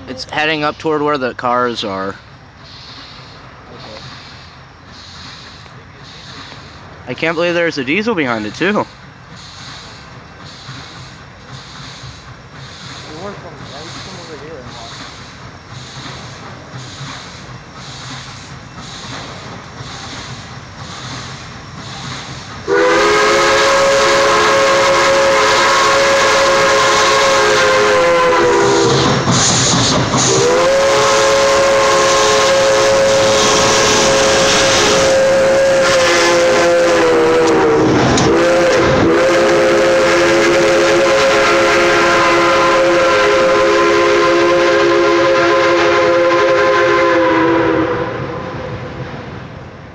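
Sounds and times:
running train: 0.0s - 49.9s
steam hiss: 1.8s - 49.4s
steam locomotive chime whistle: 22.7s - 29.2s, 30.2s - 48.6s.

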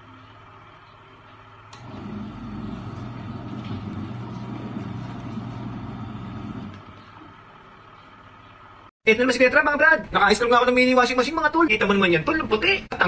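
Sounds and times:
washing machine motor humming: 0.1s - 8.9s.

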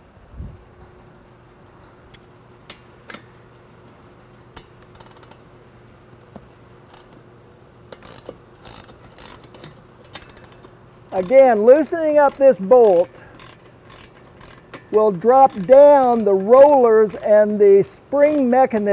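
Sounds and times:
ratchet wrench clicking: 2.1s - 5.4s, 6.8s - 7.3s, 7.9s - 18.9s.

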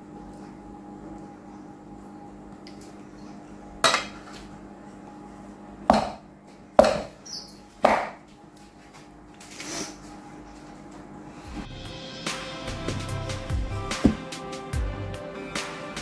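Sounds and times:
steady low hum: 0.0s - 15.4s.

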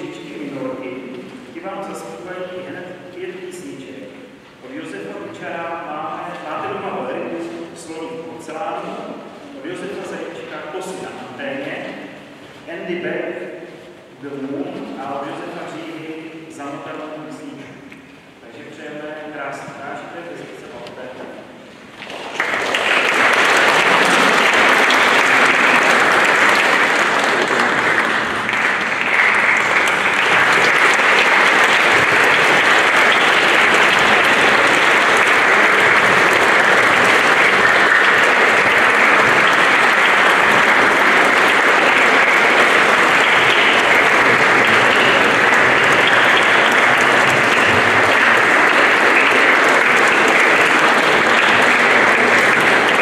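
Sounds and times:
audience applauding: 21.9s - 53.0s.

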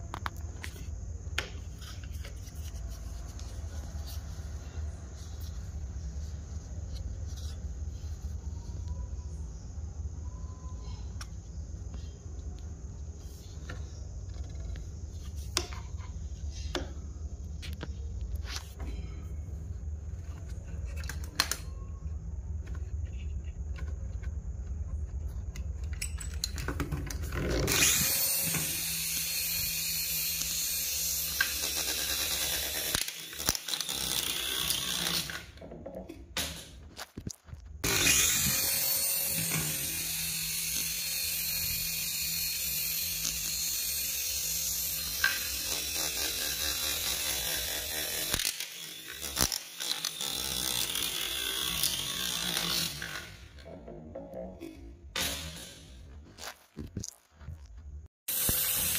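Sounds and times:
toy helicopter rotors whirring: 27.5s - 35.6s, 37.8s - 53.6s, 58.3s - 58.9s.

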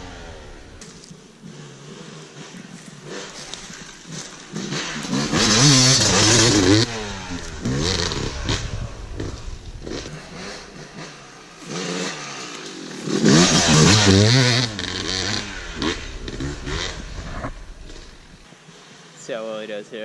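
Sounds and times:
dirt bike engine revving: 0.0s - 18.4s.

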